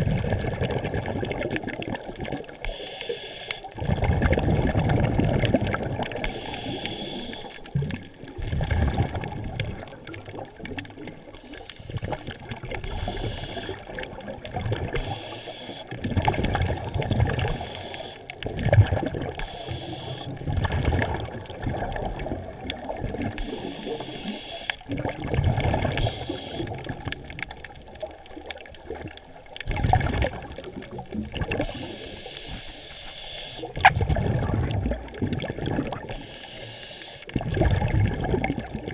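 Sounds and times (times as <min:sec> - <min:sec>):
bubbles gurgling: 0:00.0 - 0:02.7, 0:03.6 - 0:32.3, 0:33.6 - 0:36.2, 0:37.2 - 0:38.9
underwater regulator breathing: 0:02.6 - 0:03.8, 0:06.2 - 0:07.7, 0:11.3 - 0:14.2, 0:14.8 - 0:18.4, 0:19.3 - 0:20.4, 0:23.3 - 0:24.9, 0:25.9 - 0:26.9, 0:31.5 - 0:33.8, 0:36.0 - 0:37.4.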